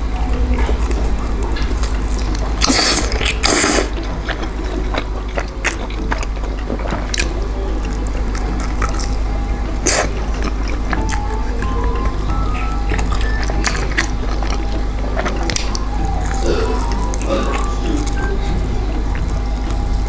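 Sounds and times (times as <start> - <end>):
slurping: 0.0 - 20.0
steady low hum: 0.0 - 20.0.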